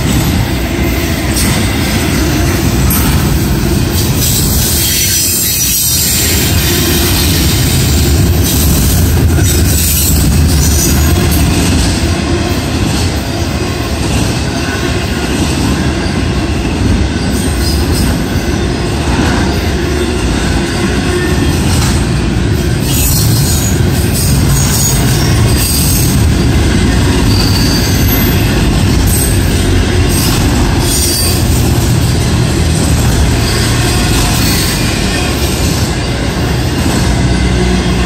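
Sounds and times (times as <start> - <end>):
freight train wheels on rails: 0.0 - 38.0.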